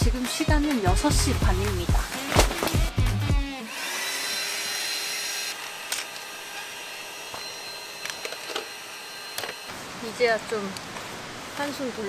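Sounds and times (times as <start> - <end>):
electric air pump whining: 2.1 - 9.8.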